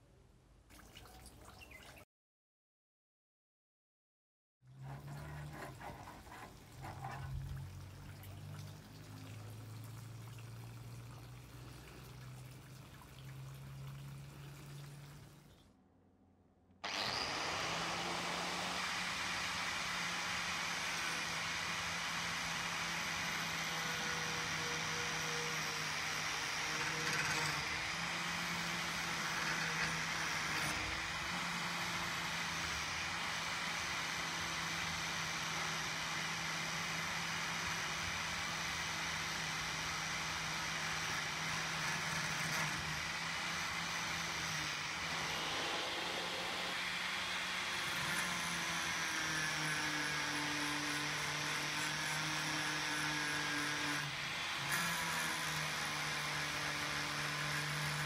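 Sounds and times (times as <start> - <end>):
angle grinder on steel blade: 16.8 - 58.0.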